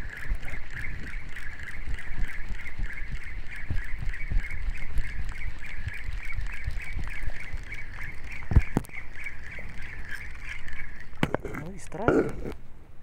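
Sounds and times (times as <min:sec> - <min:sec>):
pulsing high-pitched chirring: 0:00.0 - 0:11.2.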